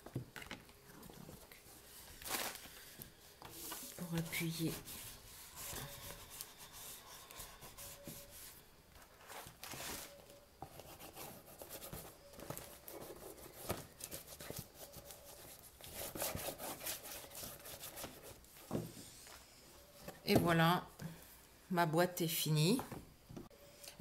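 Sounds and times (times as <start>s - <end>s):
bone folder scraping paper: 3.6s - 8.6s.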